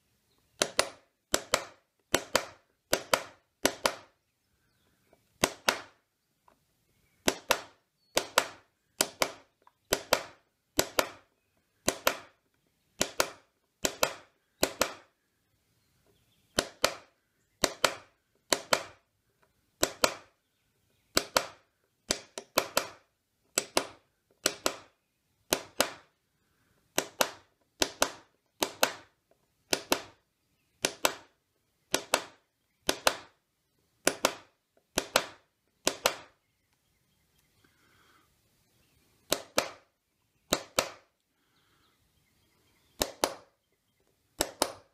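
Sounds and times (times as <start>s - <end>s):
metal punch striking wood: 0.6s - 4.1s, 5.4s - 6.0s, 7.2s - 12.4s, 13.0s - 15.1s, 16.6s - 19.0s, 25.5s - 26.1s, 34.0s - 36.3s.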